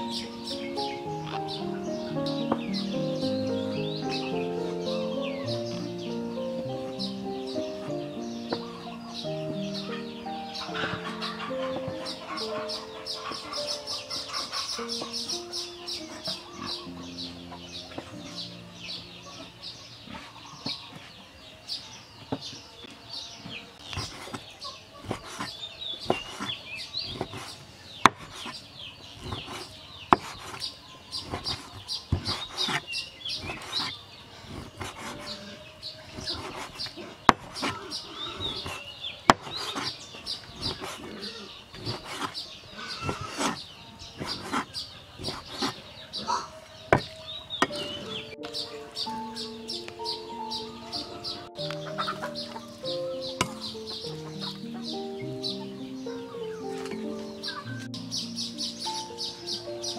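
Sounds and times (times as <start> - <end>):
music: 0.0 - 19.8, 47.6 - 59.9
birds chirping: 0.0 - 59.9.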